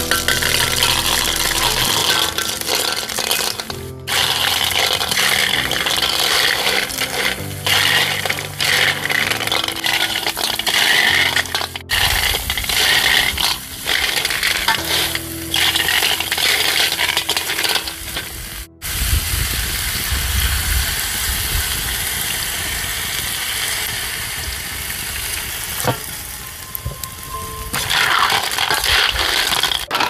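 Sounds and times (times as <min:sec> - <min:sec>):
liquid pouring: 0:00.0 - 0:18.2
food sizzling in a wok: 0:00.0 - 0:30.0.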